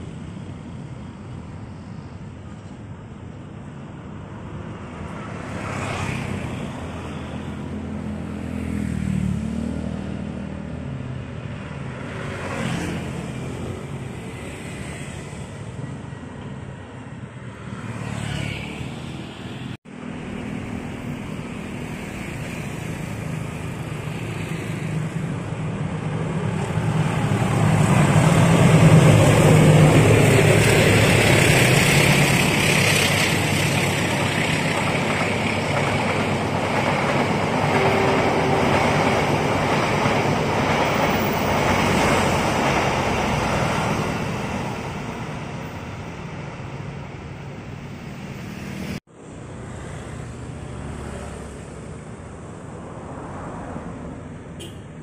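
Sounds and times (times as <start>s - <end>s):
passenger train passing: 0.0s - 55.0s
road traffic: 0.0s - 55.0s
car going by: 17.6s - 19.7s.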